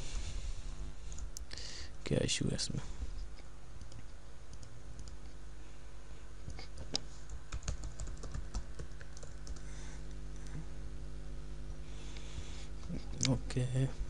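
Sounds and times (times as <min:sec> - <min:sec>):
steady low hum: 0:00.0 - 0:14.0
computer keyboard keys clicking: 0:06.5 - 0:09.6.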